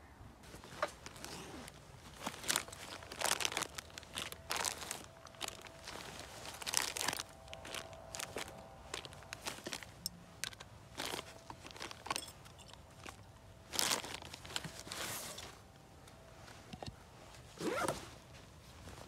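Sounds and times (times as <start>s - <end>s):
fabric bag rustling: 0.4s - 15.7s, 17.2s - 19.0s
plastic packaging crinkling: 0.5s - 15.5s.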